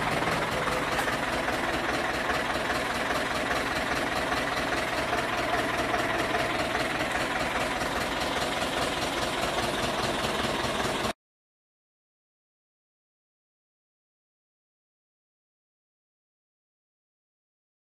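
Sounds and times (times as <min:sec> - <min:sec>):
tractor diesel engine idling: 0:00.0 - 0:11.2.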